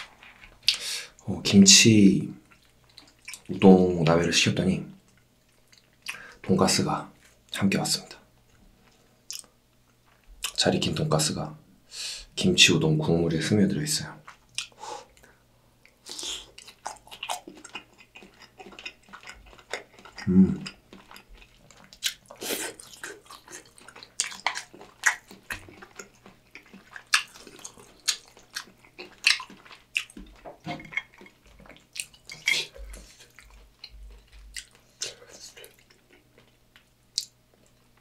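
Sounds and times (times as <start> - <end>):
close-miked wet chewing: 2.4 - 4.2, 5.0 - 7.6, 14.2 - 38.0.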